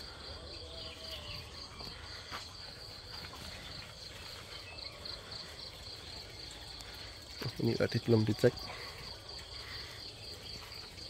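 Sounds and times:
cricket chirping: 0:00.0 - 0:11.0.

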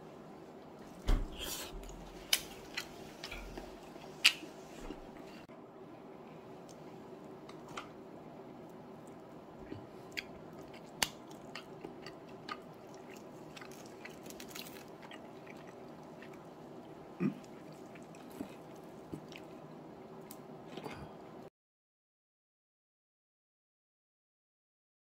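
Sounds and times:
steady low hum: 0:00.0 - 0:21.5
wet tearing of meat: 0:13.0 - 0:16.3.

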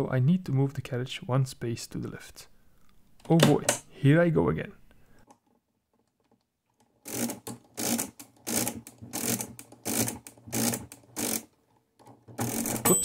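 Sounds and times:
mechanical calculator crank whirring: 0:06.8 - 0:11.6, 0:12.2 - 0:13.0.

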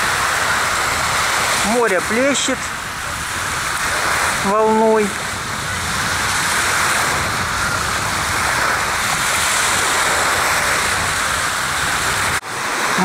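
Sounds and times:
waves washing onto beach: 0:00.0 - 0:13.0.

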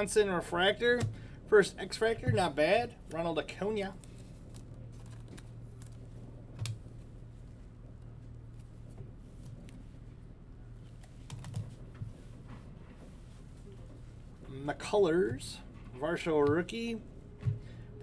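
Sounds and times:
steady low hum: 0:00.0 - 0:18.0
trading cards flipped by hand: 0:04.0 - 0:06.8.

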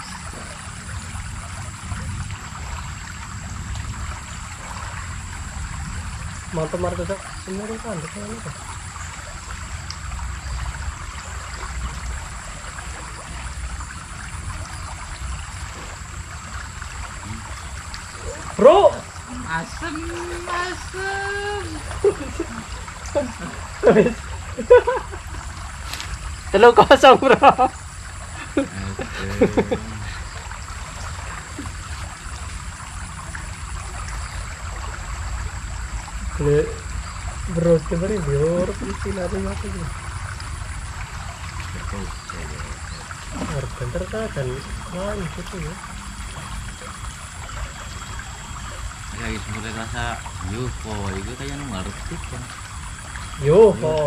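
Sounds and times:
river water running: 0:00.0 - 0:54.0
thin steady high tone: 0:04.3 - 0:54.0
person murmuring: 0:17.2 - 0:17.5, 0:28.4 - 0:30.2.

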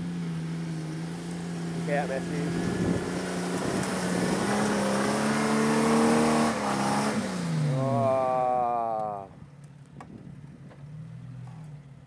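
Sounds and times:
engine revving hard: 0:01.6 - 0:08.8.

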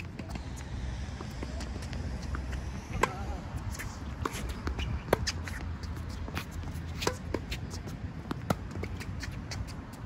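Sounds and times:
ball bouncing: 0:03.8 - 0:10.0
racket striking tennis ball: 0:06.9 - 0:07.5.

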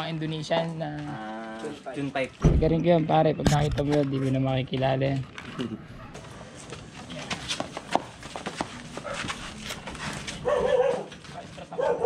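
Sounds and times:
dog yelping: 0:10.4 - 0:11.1.

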